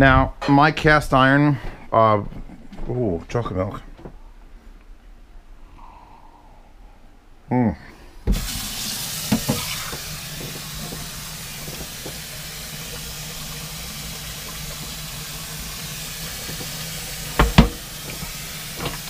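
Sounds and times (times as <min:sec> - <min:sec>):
faucet running into steel sink: 0:08.3 - 0:19.0
cast iron skillets knocking: 0:15.8 - 0:19.0.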